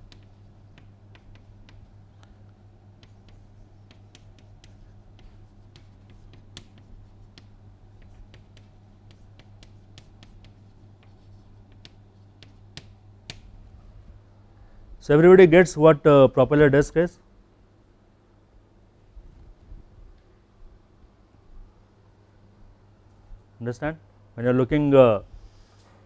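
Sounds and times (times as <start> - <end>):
chalk tapping on blackboard: 0.0 - 1.9, 3.0 - 13.7.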